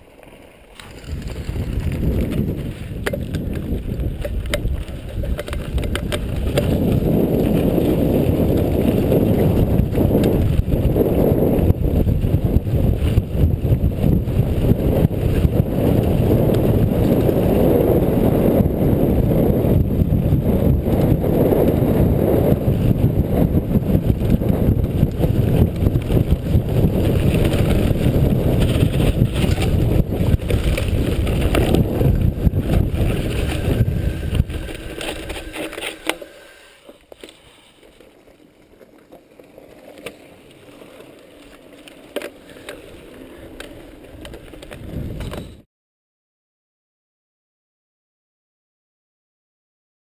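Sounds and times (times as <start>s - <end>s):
bike tyres and frame rattling: 0.0s - 45.6s
wind rush on microphone: 0.8s - 36.1s, 43.4s - 45.6s
sharp clicks and knocks: 3.0s - 6.8s.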